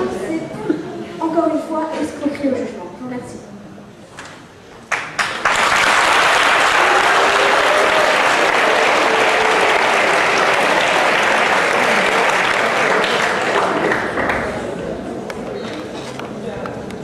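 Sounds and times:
audience applauding: 4.9 - 14.8.

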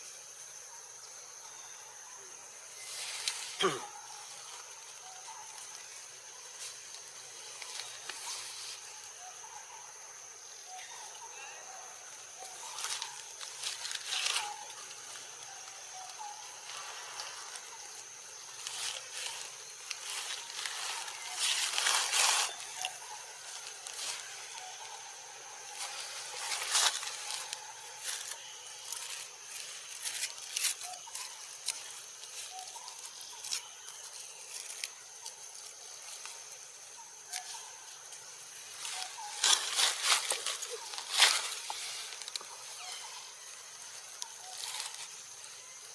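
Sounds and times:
high-pitched insect drone: 0.0 - 45.9
rustling: 12.4 - 35.4.

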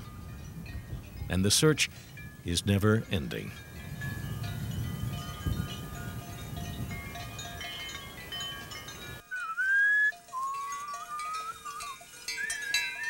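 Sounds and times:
chime-like music: 0.0 - 9.5, 10.1 - 13.0
man whistling: 9.2 - 13.0.

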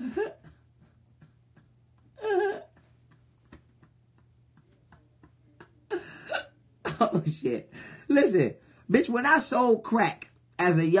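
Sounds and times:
man laughing: 0.0 - 7.7.

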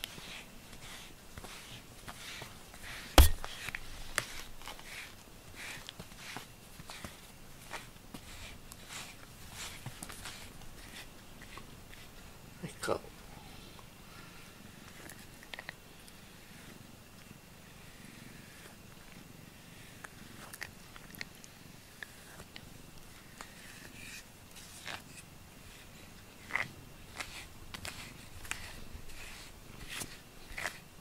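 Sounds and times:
small clicks and scrapes: 14.8 - 17.3, 19.9 - 30.9.

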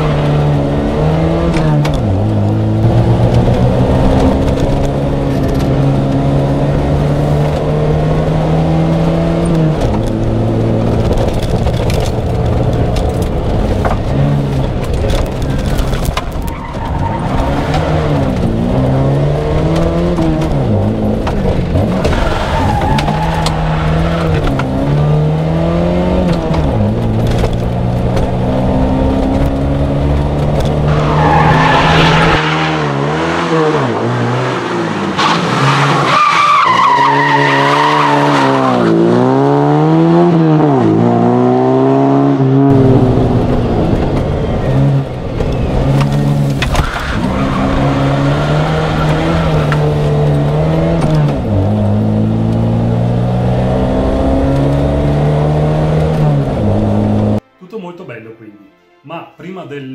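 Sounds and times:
rally car engine revving: 0.0 - 57.4
tyres squealing: 34.9 - 38.9.

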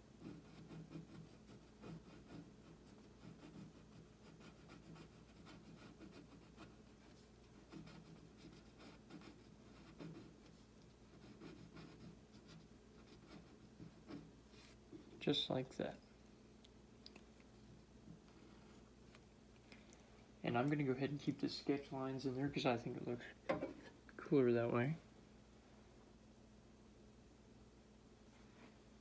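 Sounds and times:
pencil scratching on paper: 0.1 - 14.8.

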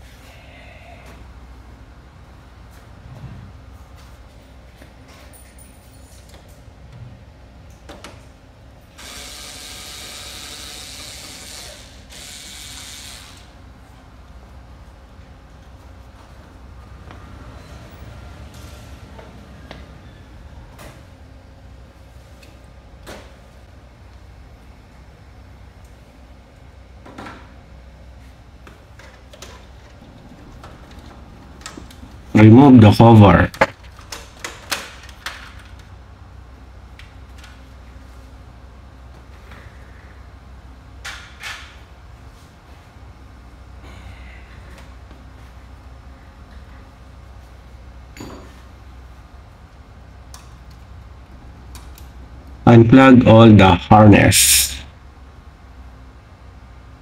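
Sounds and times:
low steady hum: 29.8 - 34.1.

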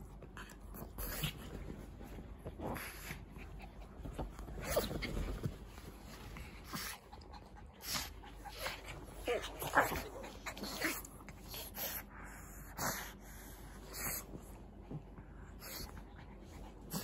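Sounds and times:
dogs play-fighting: 0.0 - 17.0
bedding rustling: 0.7 - 7.2.

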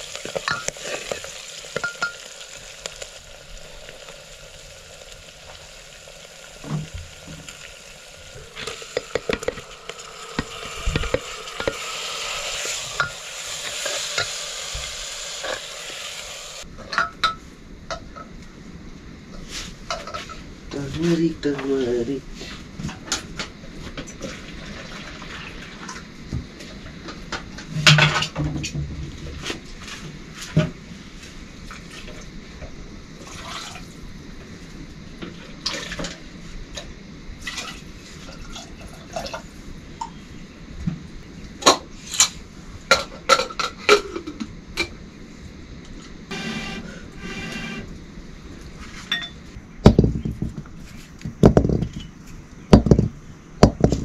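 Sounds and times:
water pouring and splashing: 0.0 - 16.7, 24.2 - 26.1, 33.2 - 34.0
metal pots and dishes clinking: 49.1 - 49.4.

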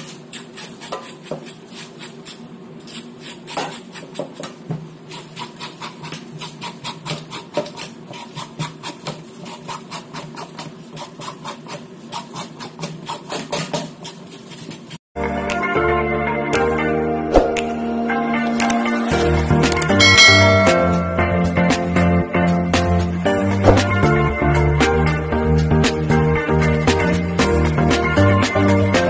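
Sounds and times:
spoon scraping gourd skin: 0.0 - 15.0.

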